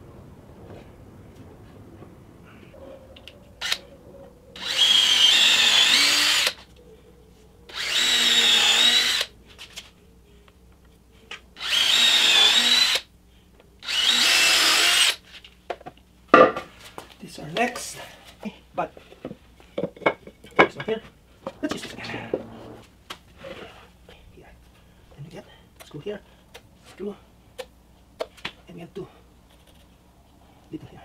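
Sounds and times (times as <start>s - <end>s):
drill driving into wood: 4.6s - 6.6s, 7.7s - 9.3s, 11.6s - 13.1s, 13.8s - 15.2s.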